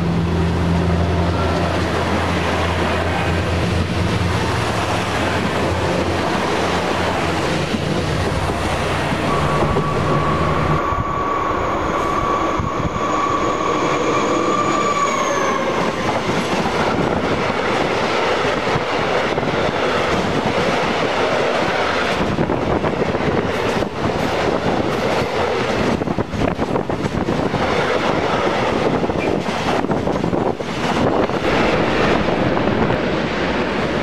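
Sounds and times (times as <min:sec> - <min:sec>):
freight train rumbling past: 0:00.0 - 0:34.0
locomotive whine: 0:00.0 - 0:34.0.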